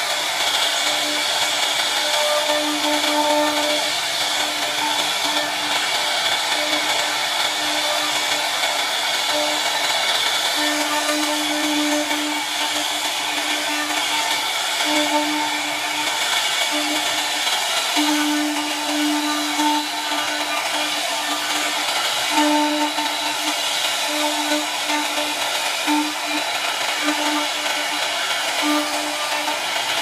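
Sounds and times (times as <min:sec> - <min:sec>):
cutter milling wood: 0:00.0 - 0:30.0
low machine hum: 0:00.0 - 0:30.0
router spindle whine: 0:00.0 - 0:30.0.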